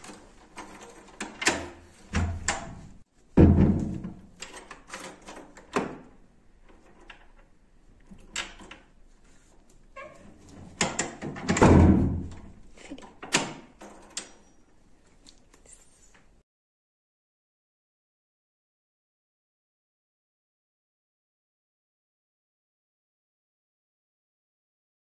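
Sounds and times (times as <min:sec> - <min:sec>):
door handle and lock rattling: 0:00.0 - 0:02.9, 0:03.8 - 0:09.0, 0:10.3 - 0:14.6.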